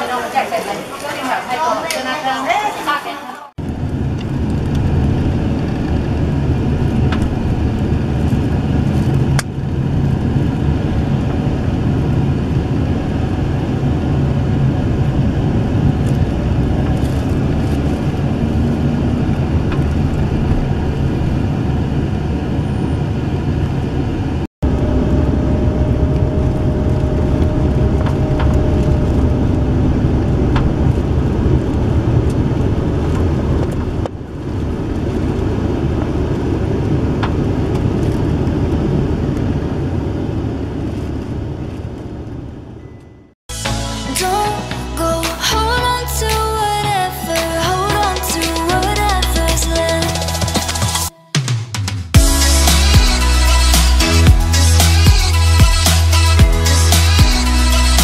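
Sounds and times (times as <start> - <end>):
car road and engine rumble: 3.5 - 43.4.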